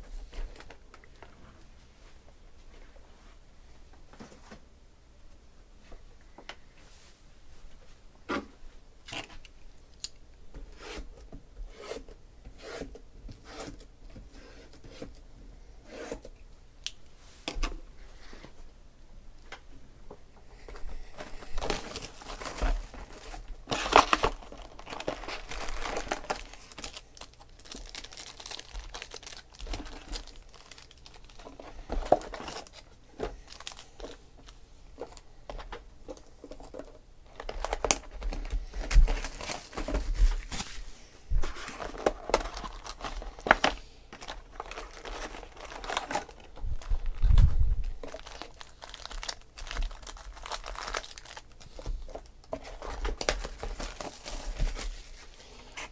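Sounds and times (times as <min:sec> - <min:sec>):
plastic and foil crinkling: 0:00.3 - 0:01.3, 0:20.7 - 0:55.9.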